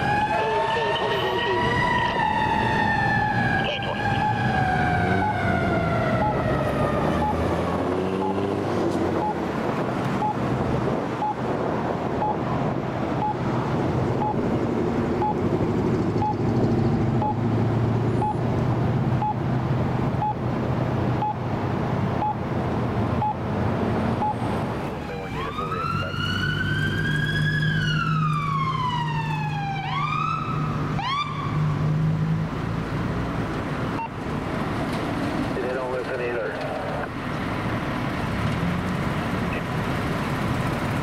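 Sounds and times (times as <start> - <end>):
fire truck siren: 0.0 - 9.5, 17.2 - 17.6, 24.2 - 31.8
street traffic: 0.0 - 41.0
idling engines: 33.4 - 41.0.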